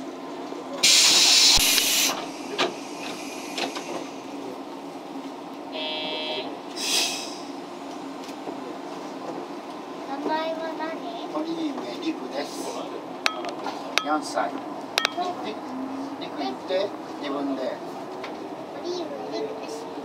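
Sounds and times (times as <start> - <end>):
train running rumble: 0.0 - 5.7
compressed air hissing: 0.8 - 4.4, 6.7 - 7.7
brief buzzing tone: 5.7 - 6.6.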